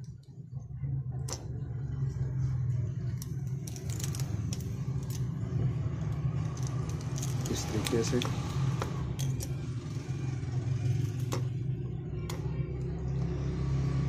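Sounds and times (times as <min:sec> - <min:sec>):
low hum: 0:00.0 - 0:14.0.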